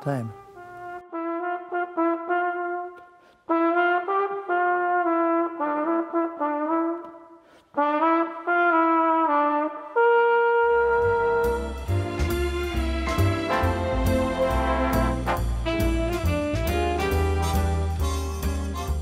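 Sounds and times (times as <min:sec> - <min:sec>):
solo trumpet melody: 0:00.0 - 0:19.0
dance-band music with bass and drums: 0:15.1 - 0:19.0.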